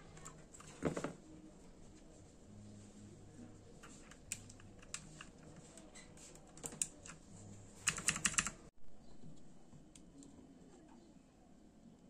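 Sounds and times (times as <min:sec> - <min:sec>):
mechanical keyboard clicking: 0:07.8 - 0:08.6.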